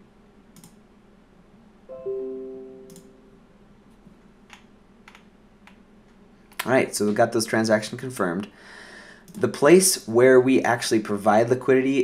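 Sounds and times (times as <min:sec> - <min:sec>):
soft mouse clicks: 0:00.5 - 0:00.8, 0:02.9 - 0:03.1, 0:09.2 - 0:09.5
descending piano-like chime: 0:01.9 - 0:03.5.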